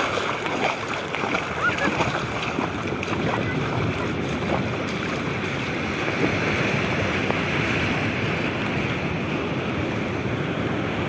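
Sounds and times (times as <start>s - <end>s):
surf washing over sand: 0.0s - 11.0s
wind buffeting microphone: 0.0s - 11.0s.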